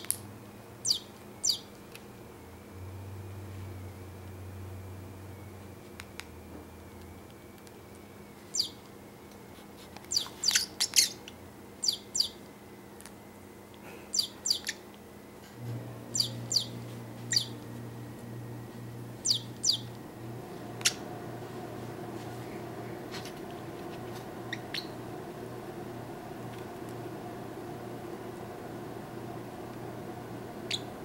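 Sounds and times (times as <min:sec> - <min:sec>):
parrot chirping: 0:00.8 - 0:01.7, 0:08.5 - 0:08.8, 0:10.1 - 0:12.4, 0:14.1 - 0:14.9, 0:16.1 - 0:17.6, 0:19.2 - 0:19.9, 0:20.7 - 0:21.1, 0:24.4 - 0:25.1, 0:30.6 - 0:31.0.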